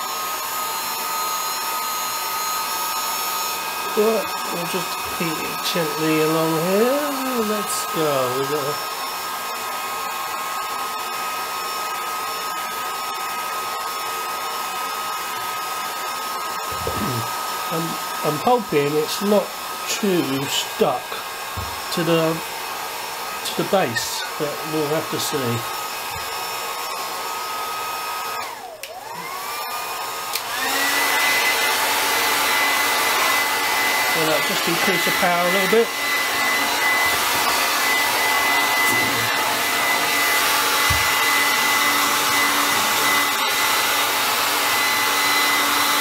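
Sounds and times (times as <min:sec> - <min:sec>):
hair dryer blowing: 0:00.0 - 0:46.0
hair dryer switch click: 0:28.8 - 0:29.4, 0:30.3 - 0:30.6.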